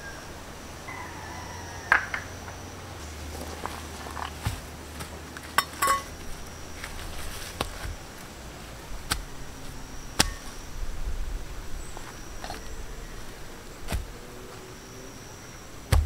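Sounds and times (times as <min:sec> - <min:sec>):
stones knocking together: 0:03.3 - 0:08.3, 0:10.2 - 0:10.5, 0:13.9 - 0:14.2.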